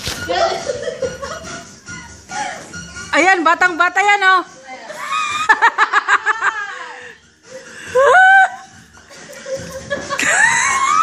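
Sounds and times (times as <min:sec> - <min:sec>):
women laughing: 0:00.3 - 0:02.7, 0:04.9 - 0:11.0.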